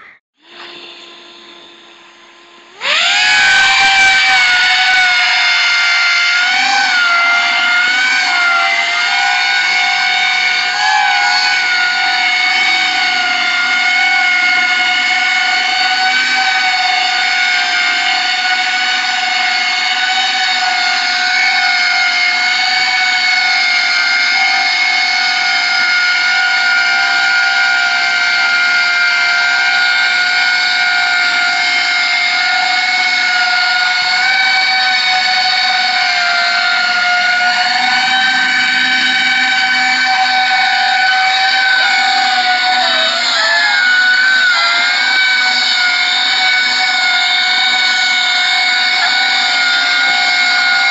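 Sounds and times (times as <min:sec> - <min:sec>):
drone propellers whining: 0:00.0 - 0:50.9.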